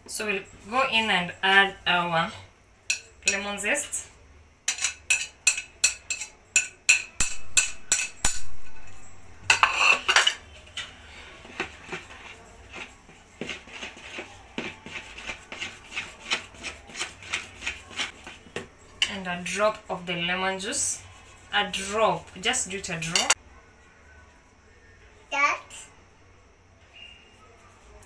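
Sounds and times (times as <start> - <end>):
knife scraping on a plate: 4.7 - 10.5
utensil stirring batter in bowl: 4.7 - 23.4.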